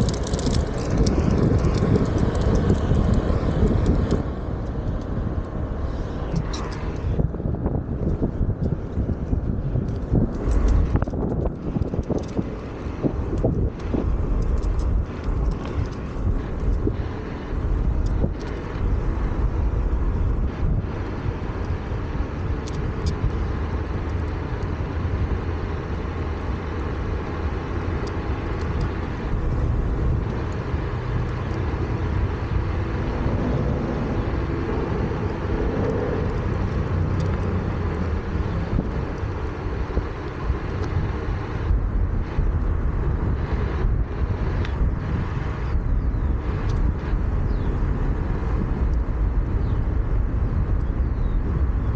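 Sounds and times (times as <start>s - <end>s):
tyre rolling on asphalt: 0.0s - 7.0s
wind rushing over microphone: 0.0s - 51.9s.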